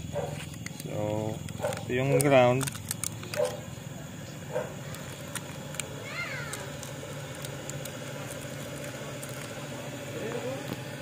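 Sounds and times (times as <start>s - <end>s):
steady low hum: 0.0s - 11.0s
plastic packaging clicks: 0.4s - 3.6s.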